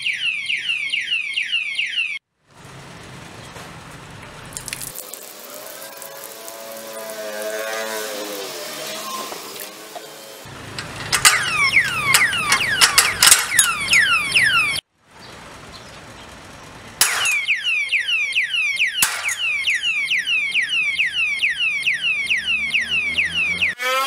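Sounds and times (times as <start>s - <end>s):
alarm siren falling whoops: 0.0s - 2.2s, 17.4s - 24.0s.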